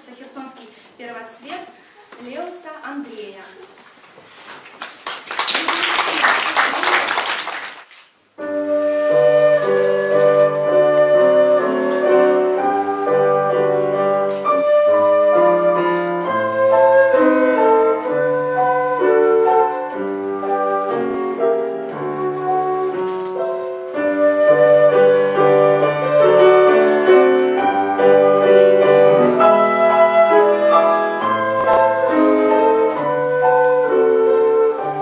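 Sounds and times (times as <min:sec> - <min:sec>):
audience applause: 0:04.4 - 0:08.0
flute melody: 0:08.4 - 0:35.0
piano accompaniment: 0:08.4 - 0:35.0.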